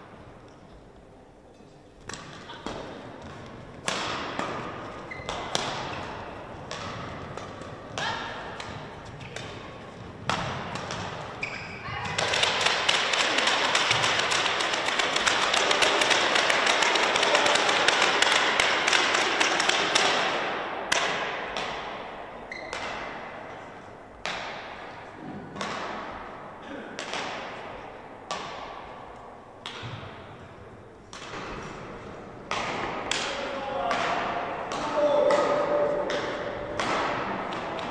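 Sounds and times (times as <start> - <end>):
clapping in a large hall: 12.2 - 21.2.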